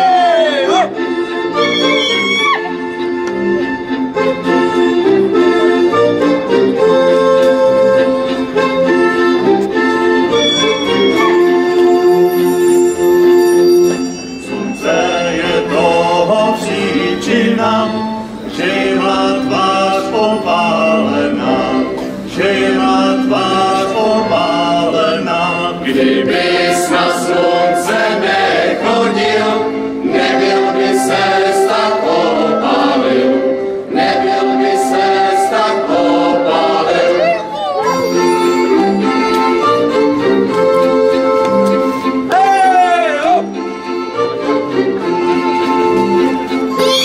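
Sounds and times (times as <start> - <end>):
men singing folk song: 14.6 - 37.2.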